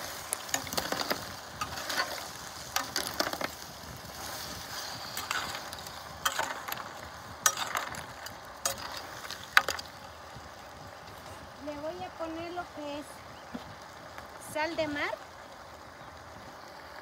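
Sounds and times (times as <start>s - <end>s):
metal spatula scraping shells and pot: 0.0s - 10.0s
frying sizzle: 0.0s - 17.0s.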